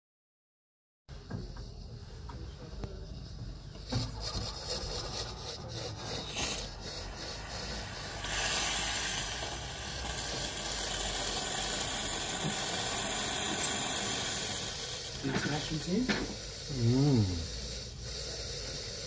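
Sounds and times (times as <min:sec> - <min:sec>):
espresso machine brewing: 0:05.7 - 0:19.0.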